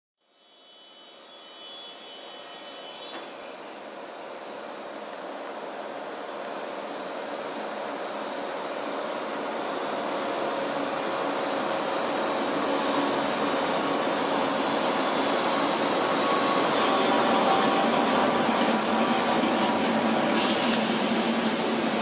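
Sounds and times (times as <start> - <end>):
electric train rumbling: 0.7 - 22.0
brief high hiss: 12.7 - 14.2, 20.4 - 21.9.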